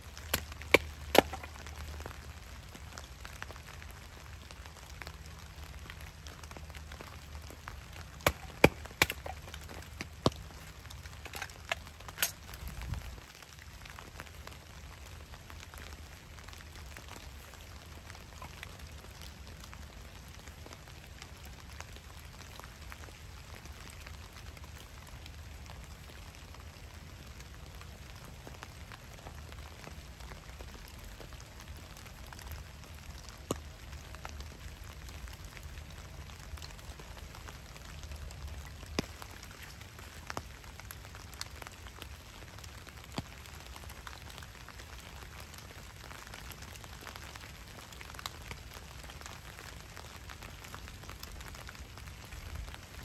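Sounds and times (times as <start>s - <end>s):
rain pattering on leaf litter: 0.0s - 53.0s
wooden knocks of splitting firewood: 0.3s - 1.7s, 8.2s - 10.4s.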